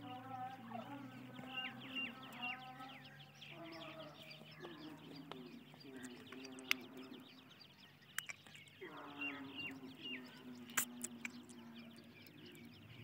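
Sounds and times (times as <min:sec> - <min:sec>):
chicks peeping: 0:00.0 - 0:13.0
sharp clicks: 0:08.1 - 0:08.8.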